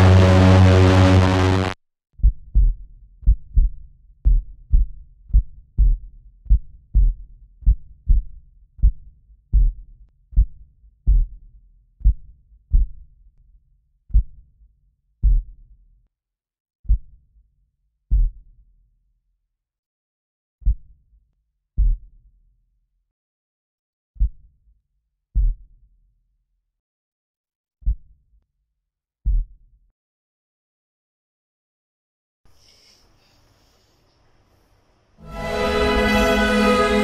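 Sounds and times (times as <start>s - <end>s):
electronic music: 0.0s - 1.8s, 35.2s - 37.0s
heartbeat thumps: 2.2s - 9.8s, 10.4s - 11.3s, 12.0s - 13.0s.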